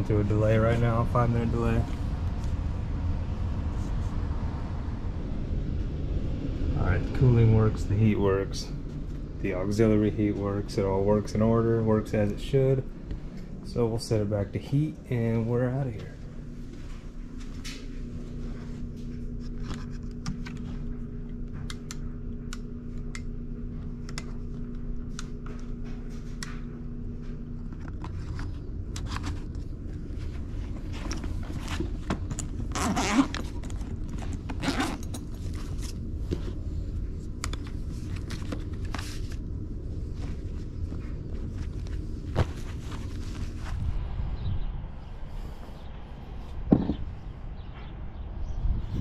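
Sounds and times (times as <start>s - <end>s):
steady low hum: 0.0s - 49.0s
bag zipper: 32.6s - 35.4s.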